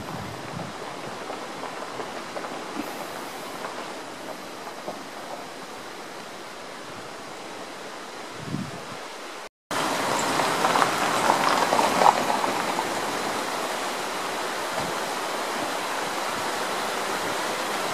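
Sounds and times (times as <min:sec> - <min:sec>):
flowing water rushing: 0:00.0 - 0:17.9
outdoor hiss: 0:00.0 - 0:17.9.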